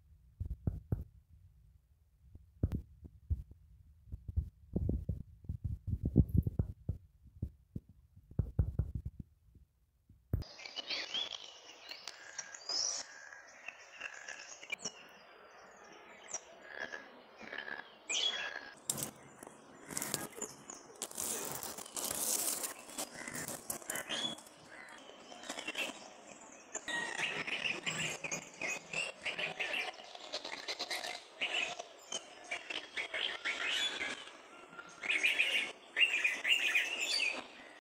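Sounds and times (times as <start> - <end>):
low dull thumps: 0.4 - 1.3, 2.4 - 9.4
birds chirping and calling: 16.2 - 37.8.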